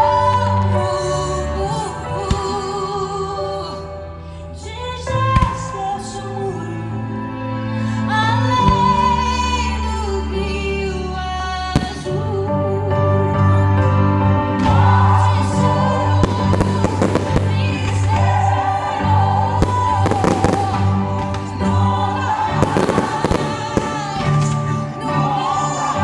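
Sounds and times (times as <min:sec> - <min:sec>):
music with sung melody: 0:00.0 - 0:26.0
fireworks bursting and crackling: 0:16.2 - 0:18.4, 0:19.6 - 0:21.7, 0:22.5 - 0:24.7.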